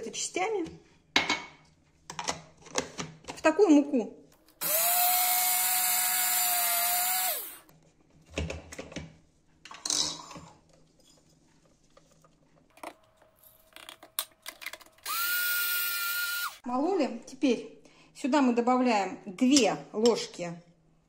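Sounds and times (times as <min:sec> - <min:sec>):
coffee grinder motor whine: 0:04.6 - 0:07.6, 0:15.0 - 0:16.6.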